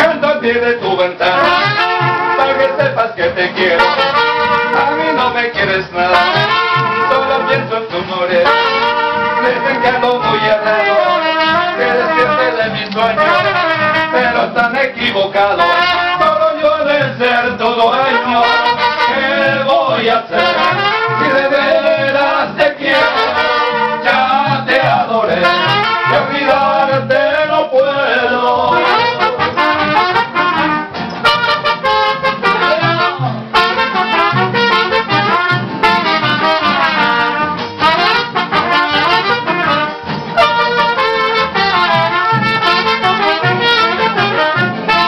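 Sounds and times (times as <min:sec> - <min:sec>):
live brass band music: 0:00.0 - 0:45.0.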